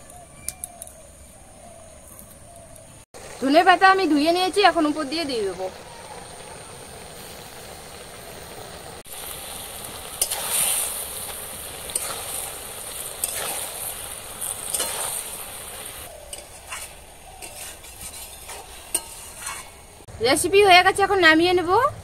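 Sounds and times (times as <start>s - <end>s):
food sizzling: 3.1s - 21.8s
metal spatula scraping pan: 14.6s - 15.2s, 16.3s - 20.0s.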